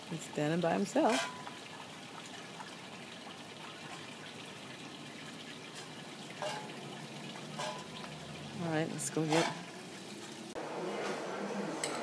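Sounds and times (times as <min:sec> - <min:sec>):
dog lapping water from metal bowl: 0:05.2 - 0:09.8.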